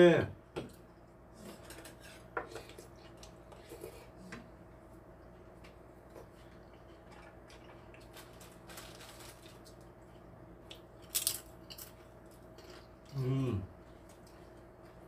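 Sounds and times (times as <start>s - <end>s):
low steady hum: 0.0s - 15.0s
soft chewing and squishing: 0.8s - 15.0s.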